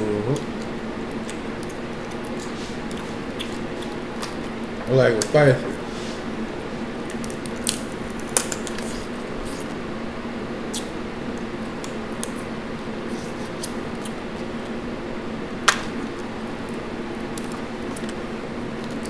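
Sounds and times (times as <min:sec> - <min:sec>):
box fan humming: 0:00.0 - 0:19.0
crawfish shells cracking: 0:07.0 - 0:09.0.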